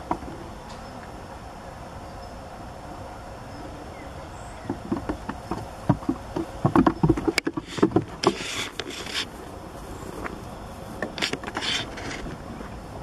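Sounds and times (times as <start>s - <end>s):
hooves knocking on wooden planks: 0.0s - 0.4s, 4.5s - 9.3s
background hum: 0.0s - 13.0s
rustling: 4.7s - 12.8s.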